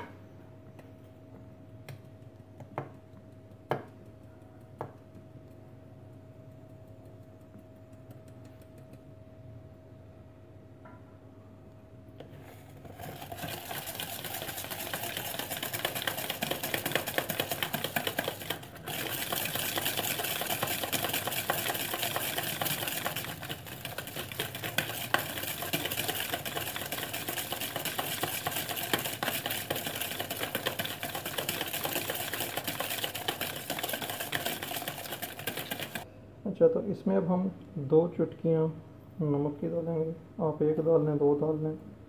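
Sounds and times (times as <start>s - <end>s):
whisk scraping plastic bowl: 12.2s - 36.0s.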